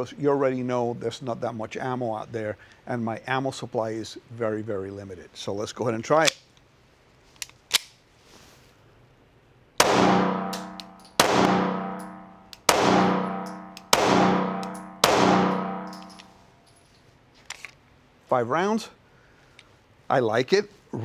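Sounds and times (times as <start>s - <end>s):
pistol shots with ringing echo: 9.8s - 16.3s.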